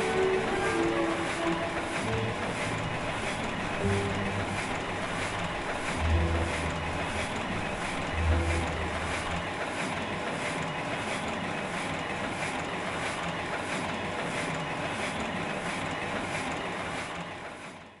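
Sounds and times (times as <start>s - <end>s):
machinery running with clatter: 0.0s - 18.0s.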